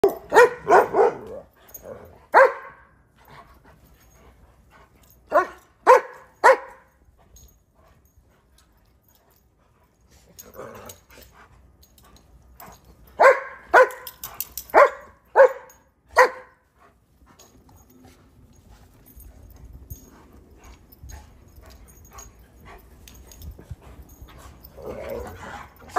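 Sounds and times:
dogs barking: 0:00.0 - 0:01.4, 0:02.3 - 0:02.9, 0:05.3 - 0:06.9, 0:13.2 - 0:16.6.

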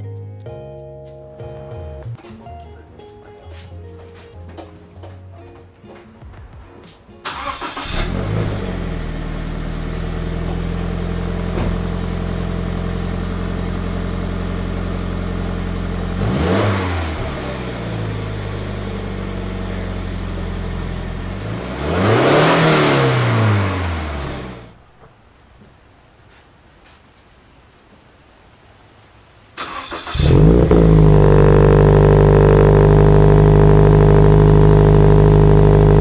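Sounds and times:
car engine cranking: 0:07.2 - 0:24.7, 0:29.6 - 0:36.0
car engine revving: 0:07.3 - 0:24.8, 0:29.6 - 0:36.0
car engine idling: 0:07.3 - 0:24.9, 0:29.6 - 0:36.0.

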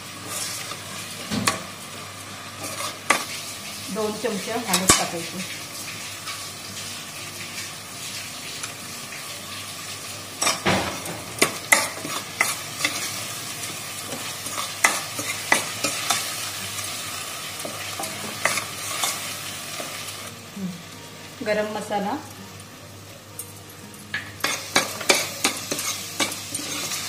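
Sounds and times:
paste sizzling in oil: 0:00.0 - 0:23.2, 0:23.8 - 0:27.0.

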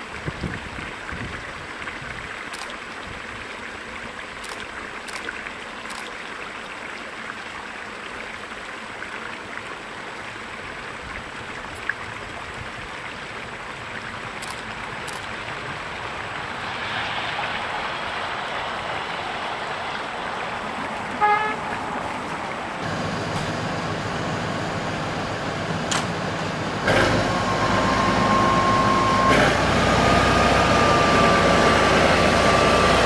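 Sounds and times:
distant train running past: 0:15.8 - 0:33.0
locomotive horn toot: 0:21.2 - 0:21.8, 0:26.9 - 0:29.9.

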